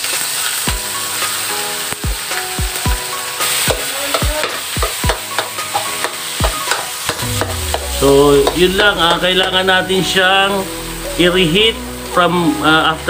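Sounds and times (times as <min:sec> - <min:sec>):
food sizzling in oil: 0:00.0 - 0:13.0
background music with a beat: 0:04.2 - 0:09.8.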